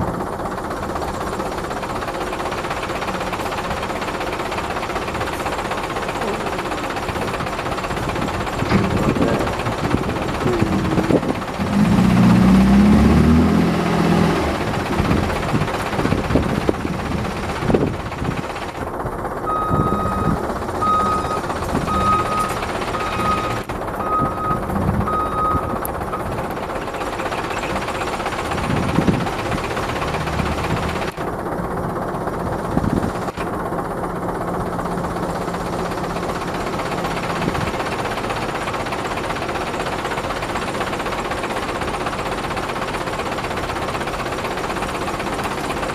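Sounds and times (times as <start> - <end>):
diesel engine clattering and revving: 0.0 - 45.9
reversing beeper: 19.5 - 26.3.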